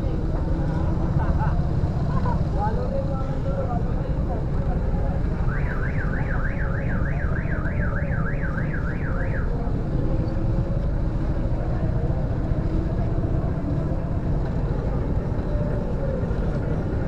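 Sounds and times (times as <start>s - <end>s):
motor scooter engine rumble: 0.0s - 17.0s
street traffic: 0.0s - 17.0s.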